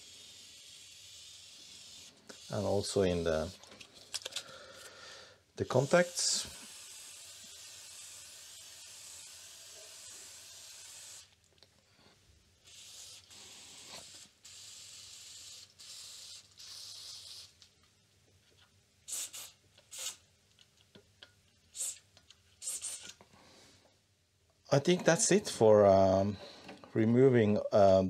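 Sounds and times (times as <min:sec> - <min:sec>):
aerosol spray hissing: 0:00.0 - 0:03.5, 0:05.7 - 0:11.4, 0:12.6 - 0:17.6, 0:19.0 - 0:20.2, 0:21.7 - 0:23.2.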